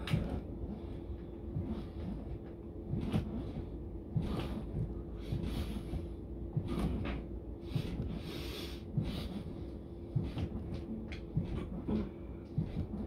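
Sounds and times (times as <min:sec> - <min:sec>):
man breathing hard: 0:07.6 - 0:10.4.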